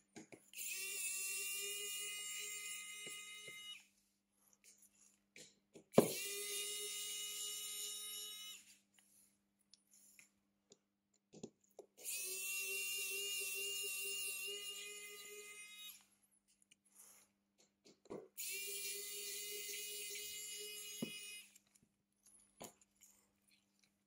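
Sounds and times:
electric motor tool whining: 0:00.6 - 0:03.8, 0:06.0 - 0:08.8, 0:12.0 - 0:16.1, 0:18.4 - 0:21.6.

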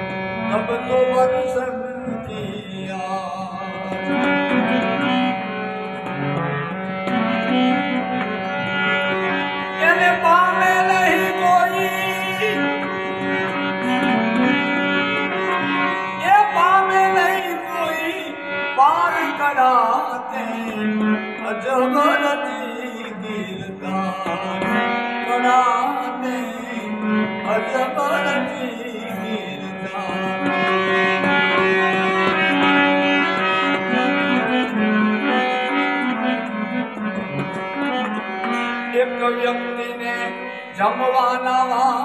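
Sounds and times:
harmonium melody: 0:00.0 - 0:42.0
man singing long notes: 0:00.5 - 0:04.6, 0:09.8 - 0:12.8, 0:16.2 - 0:31.3.

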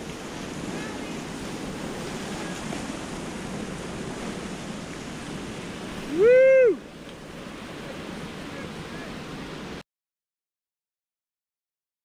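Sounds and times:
whitewater rapids rushing: 0:00.0 - 0:09.8
person whooping: 0:06.1 - 0:06.8.

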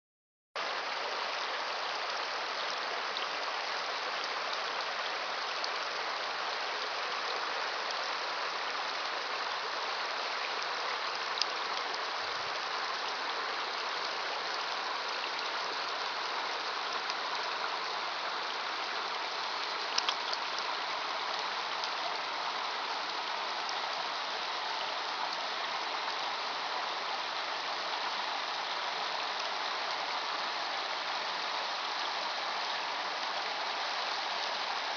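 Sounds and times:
creek water rushing: 0:00.6 - 0:34.9
faint clicks: 0:19.9 - 0:20.6.

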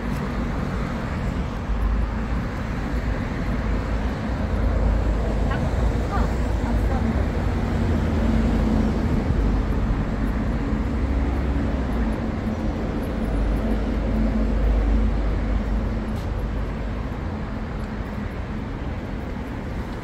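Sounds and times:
street traffic noise: 0:00.0 - 0:20.0.

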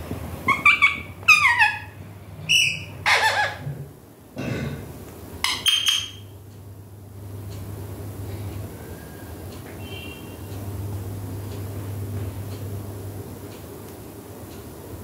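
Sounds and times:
parakeet squawks and chirps: 0:00.4 - 0:03.7, 0:05.4 - 0:06.3
steady low hum: 0:06.3 - 0:15.0.

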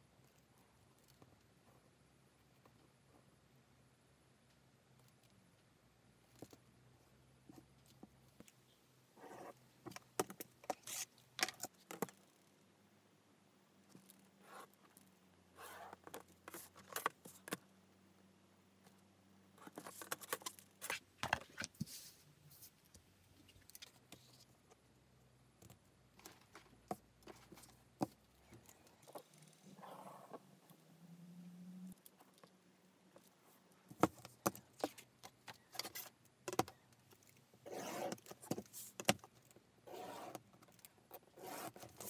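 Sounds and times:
pen scratching on paper: 0:37.7 - 0:38.2.

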